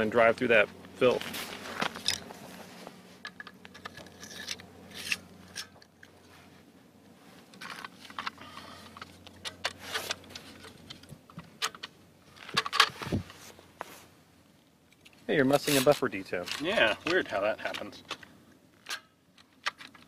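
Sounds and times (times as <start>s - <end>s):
metal parts clicking and scraping: 1.8s - 2.4s, 3.2s - 6.2s, 7.4s - 13.1s, 14.9s - 20.0s.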